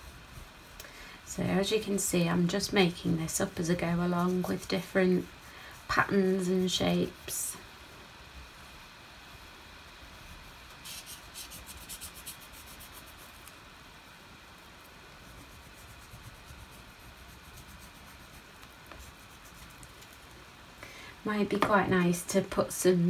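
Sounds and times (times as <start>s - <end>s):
crayon scribbling on paper: 2.9s - 7.2s, 10.8s - 13.5s, 15.3s - 19.8s.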